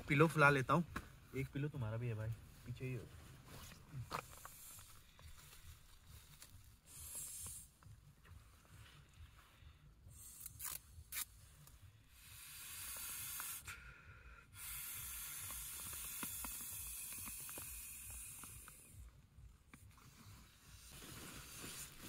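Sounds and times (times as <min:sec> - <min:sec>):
breath blown into pillow valve: 0:06.8 - 0:07.9, 0:12.0 - 0:19.1, 0:20.0 - 0:22.0.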